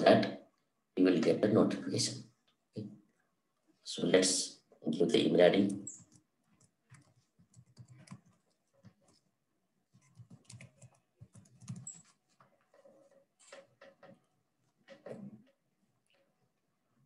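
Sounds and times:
keyboard typing: 5.7 - 9.3, 9.9 - 14.2.

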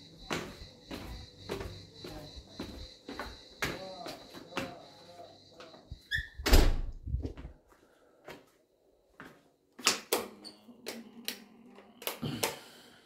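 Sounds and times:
footsteps on hard tiled floor: 0.0 - 6.2, 7.0 - 9.9
door being handled: 6.1 - 7.0.

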